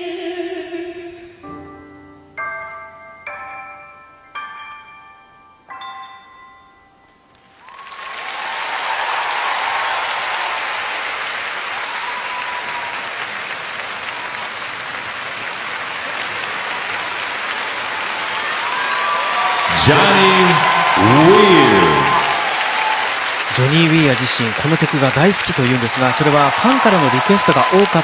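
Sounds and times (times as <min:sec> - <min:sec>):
large audience applauding: 0:07.5 - 0:28.0.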